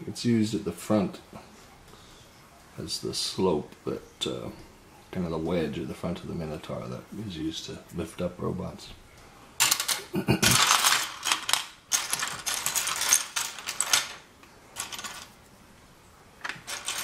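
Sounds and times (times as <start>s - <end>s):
plastic parts clattering on table: 9.6s - 15.4s, 16.4s - 17.0s.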